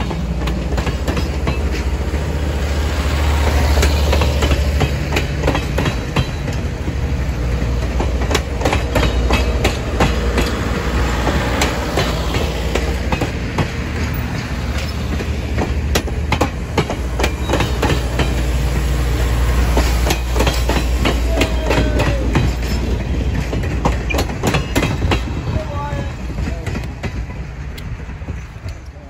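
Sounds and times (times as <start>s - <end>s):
train cars rumbling: 0.0s - 29.0s
wheels clicking over rail joints: 0.0s - 29.0s.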